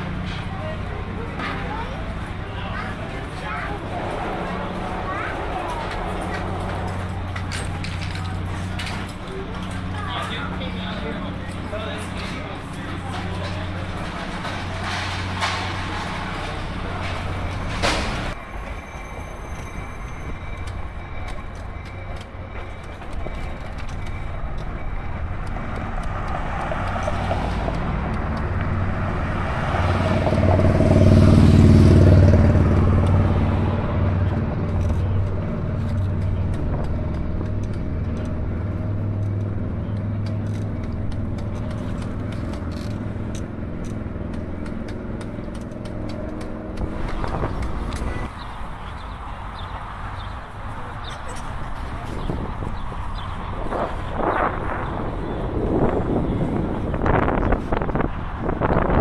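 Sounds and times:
vehicle passing: 0:00.0 - 0:18.4, 0:24.0 - 0:59.0
city traffic rumble: 0:00.0 - 0:59.0.

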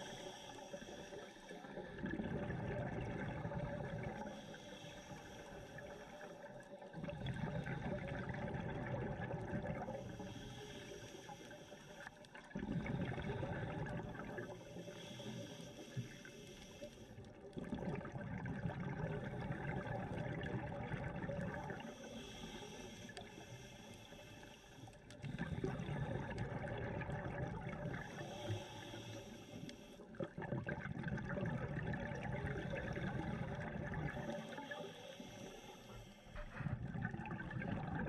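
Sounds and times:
diver inhaling through regulator: 0:00.0 - 0:02.0, 0:04.0 - 0:06.4, 0:09.8 - 0:17.2, 0:21.6 - 0:26.8, 0:27.7 - 0:30.1, 0:32.3 - 0:37.0
bubbling exhale: 0:00.0 - 0:38.0.

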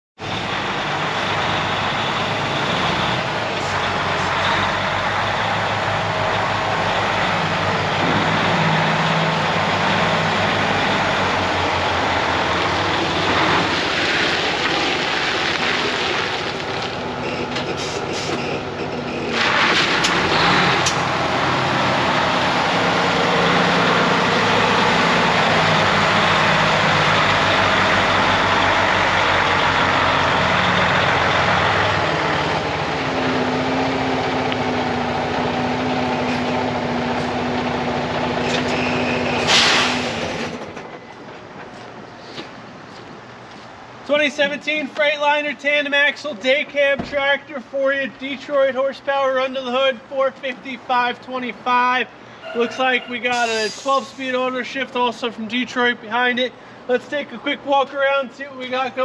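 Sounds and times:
diesel truck engine running: 0:00.2 - 0:44.3.

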